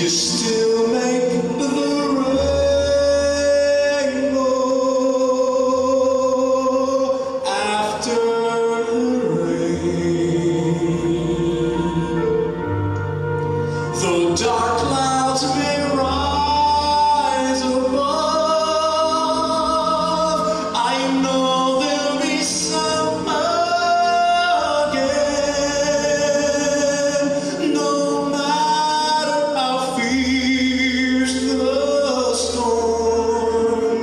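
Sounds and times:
man singing a ballad: 0.0s - 12.4s, 13.8s - 34.0s
instrumental accompaniment: 0.0s - 34.0s.

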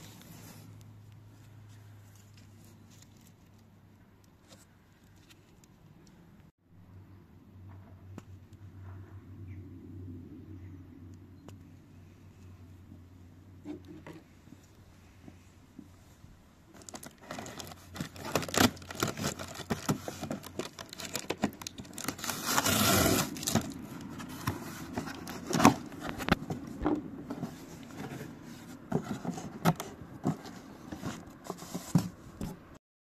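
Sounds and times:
packing tape being slit: 16.8s - 23.8s
cardboard tearing: 16.8s - 26.4s
cardboard knocks and scrapes: 17.3s - 32.6s.

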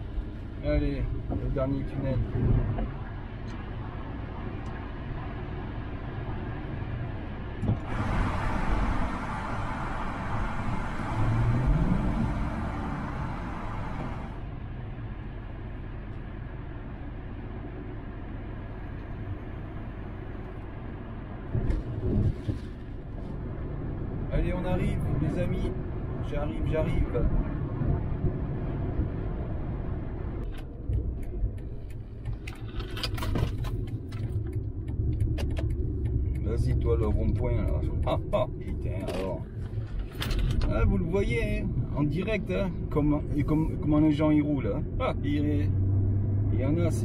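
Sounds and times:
road noise inside car: 0.0s - 47.0s
car engine accelerating: 7.5s - 14.6s.

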